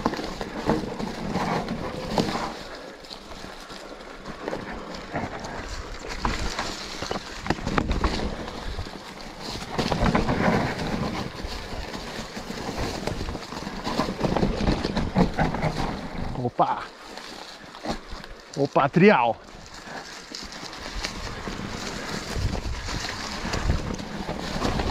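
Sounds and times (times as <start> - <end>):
bike clattering over bumps: 0.0 - 16.4, 19.4 - 24.9
tyres crunching over leaves: 0.0 - 24.9
wind buffeting microphone: 20.8 - 24.9.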